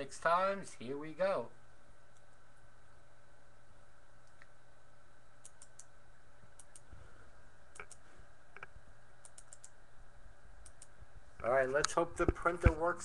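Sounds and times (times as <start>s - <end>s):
faint hum: 0.0s - 13.0s
computer clicks: 5.4s - 5.9s, 6.6s - 6.9s, 7.7s - 8.0s, 8.6s - 9.8s, 10.6s - 11.0s.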